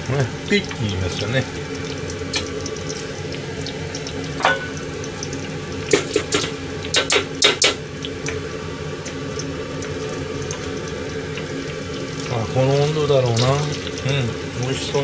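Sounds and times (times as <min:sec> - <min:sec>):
oil bubbling in pot: 0:00.0 - 0:15.0
metal ladle clinking on pots: 0:04.4 - 0:04.8.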